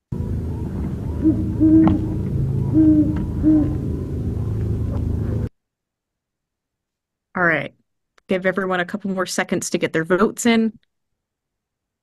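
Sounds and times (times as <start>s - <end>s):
steady low rumble: 0.0s - 5.5s
owl hooting: 0.5s - 5.5s.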